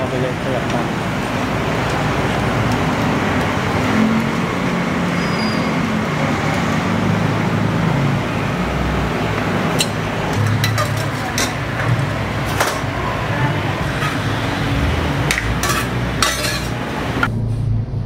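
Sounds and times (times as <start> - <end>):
steady rushing background noise: 0.0 - 18.0
low hum: 16.9 - 18.0.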